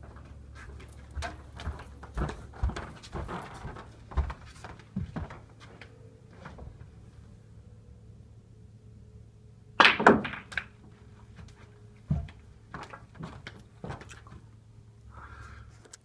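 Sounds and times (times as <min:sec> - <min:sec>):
snooker balls clacking: 0:09.8 - 0:10.8.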